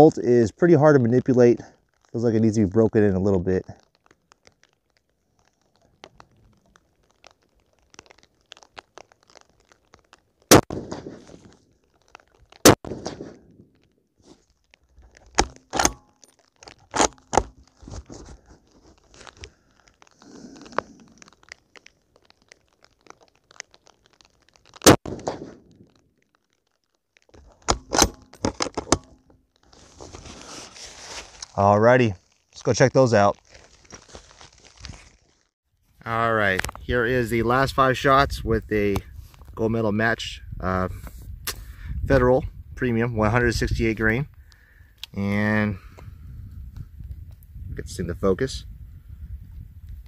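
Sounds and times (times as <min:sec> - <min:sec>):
rifle shots: 0:10.5 - 0:11.3, 0:12.6 - 0:13.4, 0:15.4 - 0:16.0, 0:24.8 - 0:25.8
rifle bolt clicking and clacking: 0:15.4 - 0:17.5, 0:27.6 - 0:29.2.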